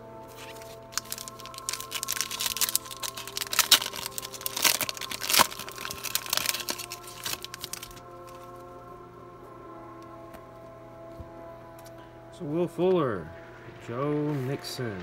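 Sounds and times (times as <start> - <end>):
soft background music: 0.0 - 15.0
foil wrapper crinkling and tearing: 0.2 - 8.6.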